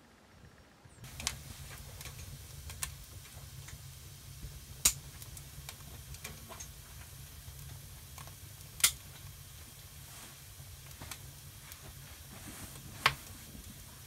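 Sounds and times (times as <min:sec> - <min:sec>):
steady low hum: 0:00.0 - 0:14.0
sharp pops of fire: 0:01.0 - 0:14.0
wood fire crackling: 0:01.0 - 0:14.0.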